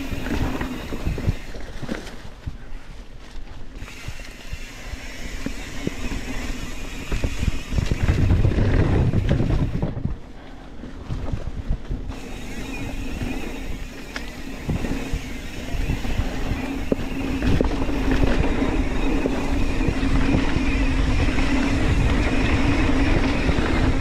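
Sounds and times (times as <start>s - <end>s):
bike rattling: 0.0s - 24.0s
bike tyres rolling on dirt: 0.0s - 24.0s
wind on microphone: 0.0s - 24.0s
steady buzz: 12.1s - 24.0s.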